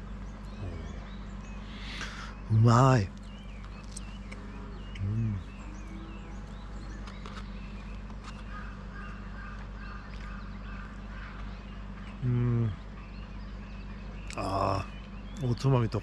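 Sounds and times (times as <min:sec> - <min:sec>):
birds chirping: 0:00.0 - 0:16.0
man humming: 0:00.5 - 0:02.7, 0:05.0 - 0:05.7, 0:12.2 - 0:12.8.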